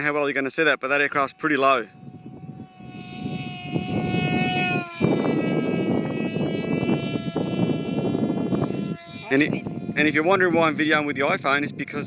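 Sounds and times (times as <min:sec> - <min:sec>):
electric motor and propeller whining: 0:00.0 - 0:12.0
wind rumble on microphone: 0:01.1 - 0:12.0.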